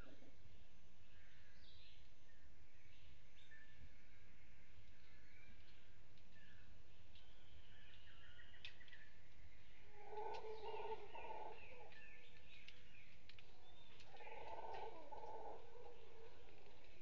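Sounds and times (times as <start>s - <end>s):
small birds chirping and whistling: 7.2s - 17.0s
howler monkeys calling: 9.9s - 12.2s, 13.5s - 17.0s.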